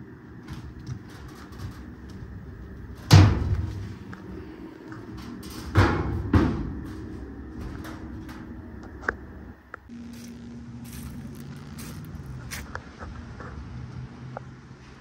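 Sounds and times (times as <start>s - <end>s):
steady low hum: 0.0s - 14.9s.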